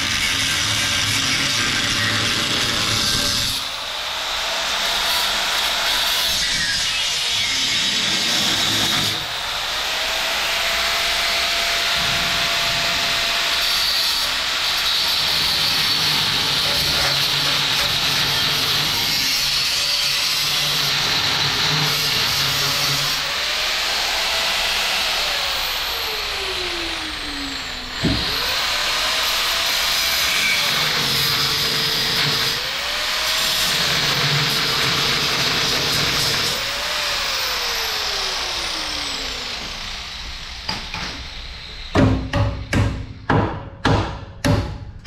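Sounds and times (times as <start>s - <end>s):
power tool grinding metal: 0.0s - 42.0s
sharp knock: 41.9s - 45.0s.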